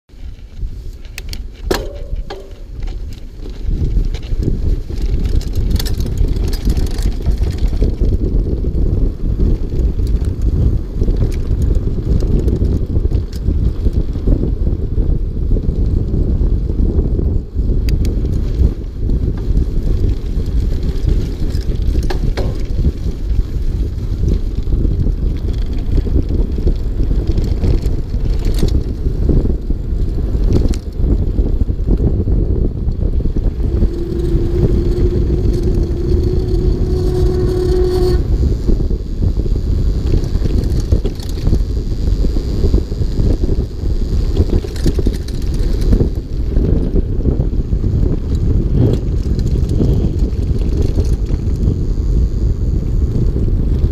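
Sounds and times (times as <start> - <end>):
bike tyres rumbling on dirt: 0.1 - 53.9
wind buffeting microphone: 0.1 - 53.9
bike knocks and rattles: 0.2 - 15.1, 16.8 - 38.2
steady pitched tone: 1.7 - 2.9, 32.7 - 39.6.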